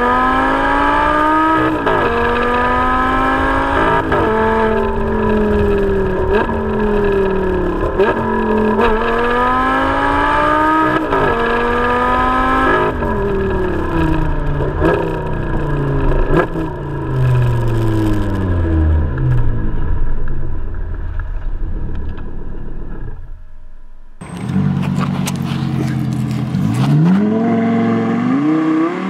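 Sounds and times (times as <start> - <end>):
sports car engine accelerating: 0.0 - 23.5, 24.1 - 29.0
exhaust cracks: 1.1 - 27.4.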